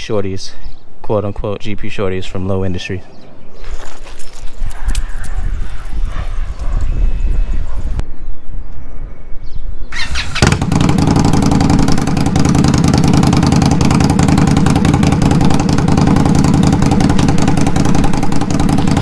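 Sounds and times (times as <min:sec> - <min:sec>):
motorcycle engine idling: 0:10.0 - 0:19.0.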